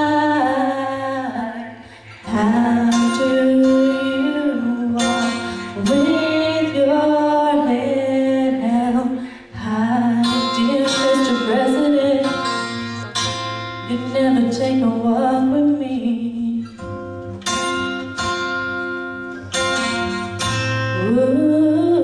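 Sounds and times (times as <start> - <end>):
woman singing a slow ballad: 0.0 - 13.0, 13.7 - 17.0, 20.8 - 22.0
guitar accompaniment: 0.0 - 22.0.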